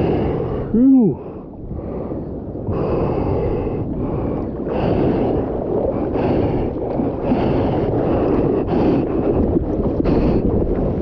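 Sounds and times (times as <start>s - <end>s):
wind on microphone: 0.0s - 11.0s
water rushing along surfboard: 4.0s - 11.0s.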